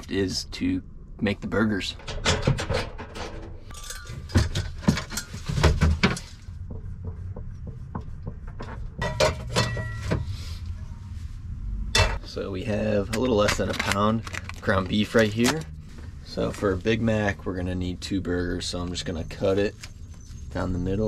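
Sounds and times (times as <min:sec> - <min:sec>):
low steady hum: 0:00.0 - 0:21.0
kitchen items clinking and clattering: 0:02.0 - 0:06.4, 0:08.7 - 0:10.3.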